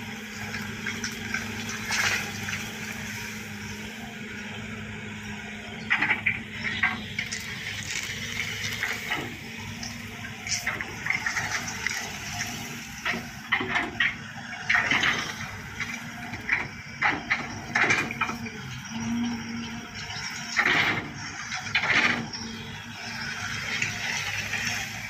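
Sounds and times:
excavator diesel engine: 0.0 - 25.0
dry brush crackling and snapping: 7.3 - 9.0.

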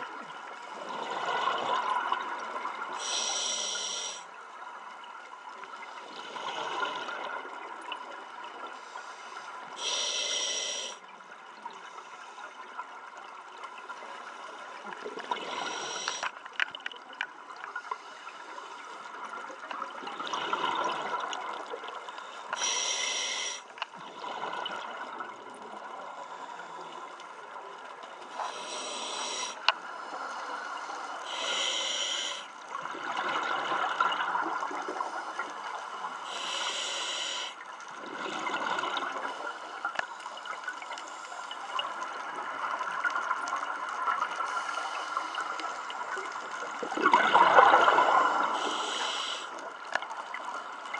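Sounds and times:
regulator inhalation hiss: 3.0 - 4.3, 9.0 - 11.0, 15.5 - 16.3, 22.5 - 23.7, 28.3 - 32.5, 36.3 - 37.6, 48.4 - 49.6
gurgle of exhaled bubbles: 19.8 - 21.9, 46.7 - 49.0.

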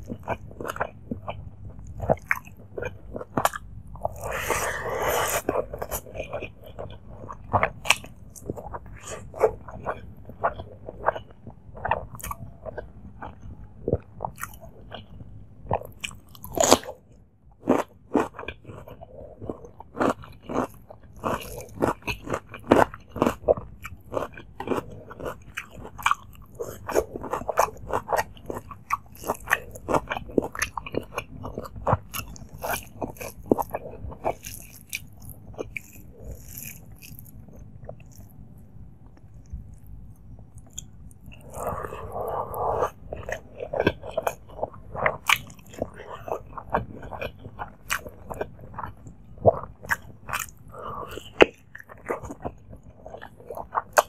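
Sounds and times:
wet chewing: 0.0 - 38.4, 39.0 - 54.0
crunchy bites: 17.6 - 38.4.

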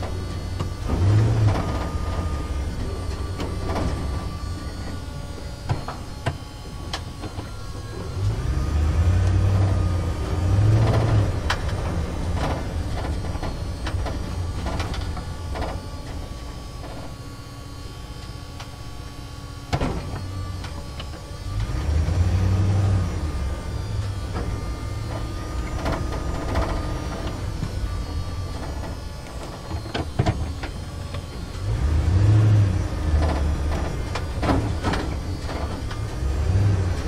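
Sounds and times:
truck engine rumble: 0.0 - 37.0
clanks and knocks: 24.3 - 31.4.

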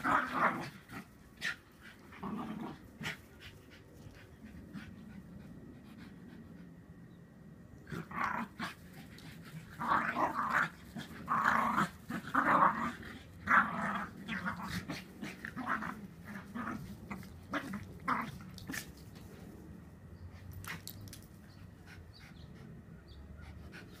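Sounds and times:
small dogs growling: 0.0 - 6.4, 7.8 - 19.3.

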